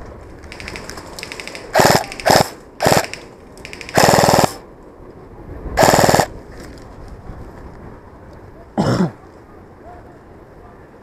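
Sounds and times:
airsoft gun firing bursts: 0.5 - 4.6, 5.8 - 6.3.

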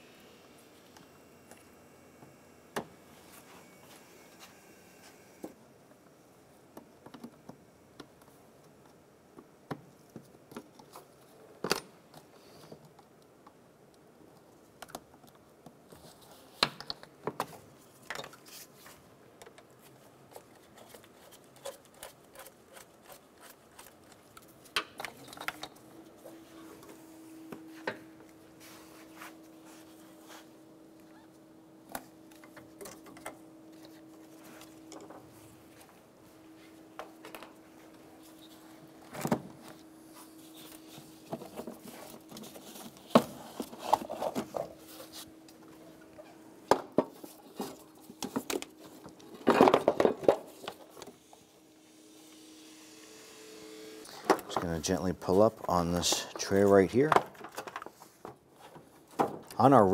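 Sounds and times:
faint steady hum: 0.0 - 59.9.

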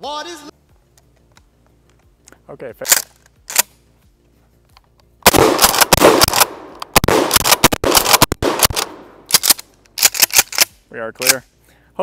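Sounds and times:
rapid gunfire: 5.3 - 8.9.

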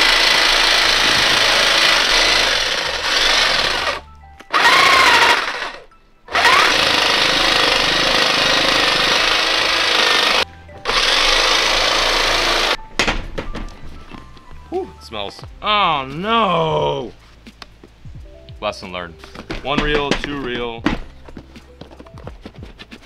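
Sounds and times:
electric hedge trimmer buzzing: 0.0 - 12.8.

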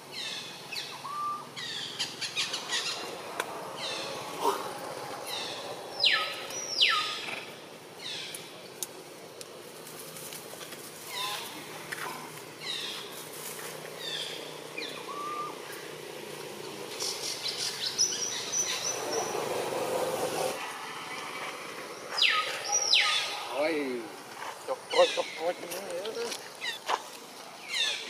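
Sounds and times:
high downward-sliding animal calls: 0.8 - 8.2, 14.0 - 15.8.

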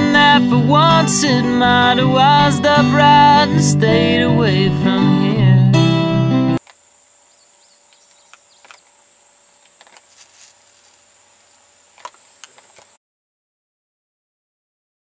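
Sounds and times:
high-pitched insect drone: 6.6 - 13.0.

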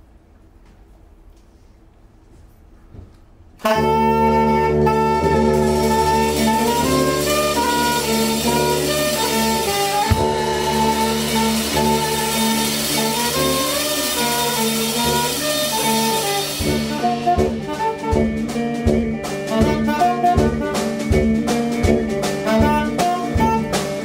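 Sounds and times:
electric guitar: 3.6 - 24.0
held low tuba notes: 3.6 - 24.0
tenor saxophone melody: 3.6 - 24.0
sharp drum hit: 4.8 - 24.0.

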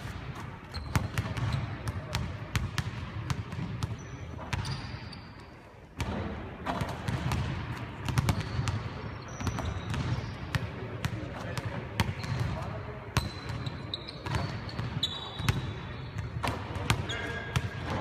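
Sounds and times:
basketballs bouncing on hardwood: 6.0 - 12.6.

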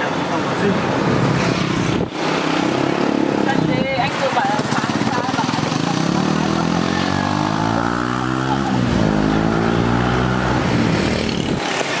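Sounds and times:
road and wind noise: 0.0 - 12.0
street traffic: 0.0 - 12.0
engine accelerating: 5.5 - 11.8.

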